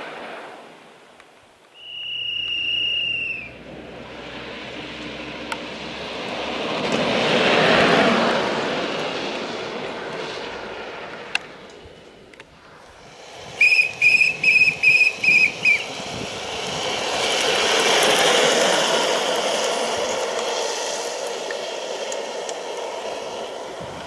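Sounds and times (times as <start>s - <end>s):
kart tyres rolling on asphalt: 0.0s - 24.0s
shrill whistle-like notes: 1.7s - 3.6s, 13.5s - 16.0s.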